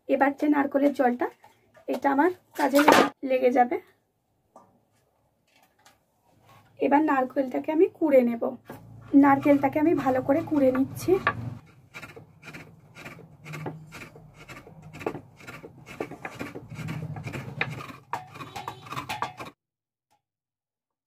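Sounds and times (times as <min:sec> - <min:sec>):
coconut scraper rasping: 0:08.8 - 0:19.6.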